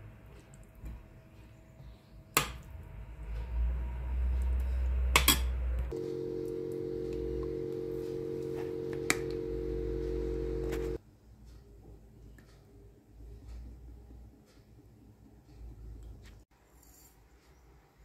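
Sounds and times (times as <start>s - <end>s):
appliance hum: 0.0s - 11.0s.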